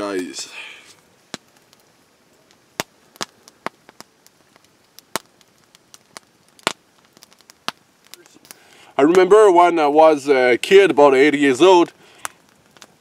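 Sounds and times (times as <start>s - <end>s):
wood fire crackling: 0.0s - 13.0s
sharp pops and snaps: 0.9s - 9.3s, 12.0s - 13.0s.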